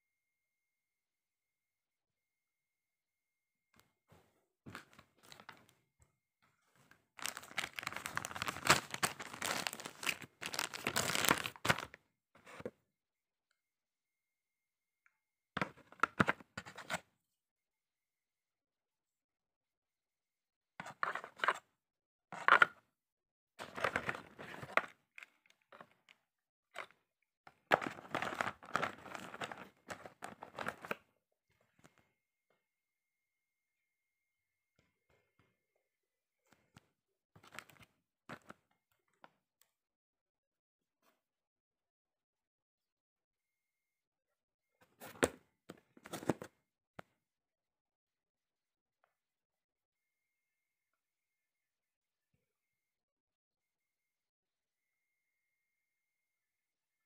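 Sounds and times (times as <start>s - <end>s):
packaging rustling and crinkling: 7.2s - 12.0s.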